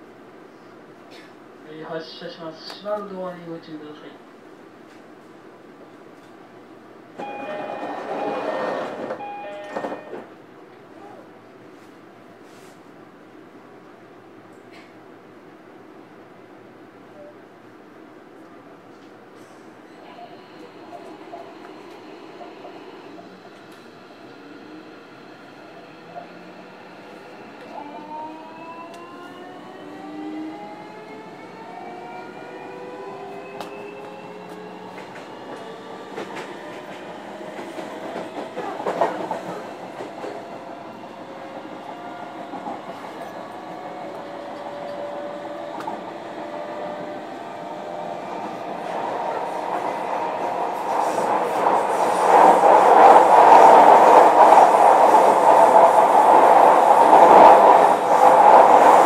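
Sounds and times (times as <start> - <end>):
wheel-on-rail noise: 48.9 - 59.0.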